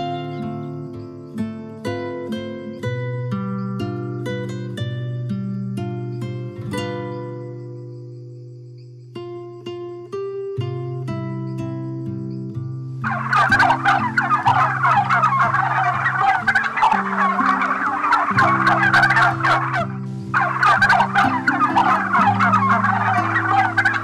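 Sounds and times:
soft background music: 9.9s - 24.0s
flock of birds chattering: 13.0s - 24.0s.

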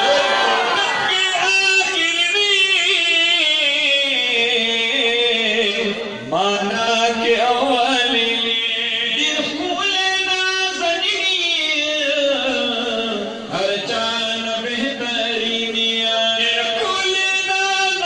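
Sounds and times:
man chanting into a microphone: 0.0s - 18.0s.

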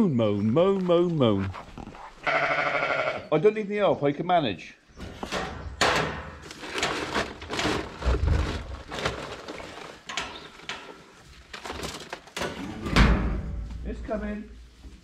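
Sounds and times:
knocks and clatters in metal bin: 5.0s - 14.1s
feed sacks rustling: 6.4s - 12.5s.

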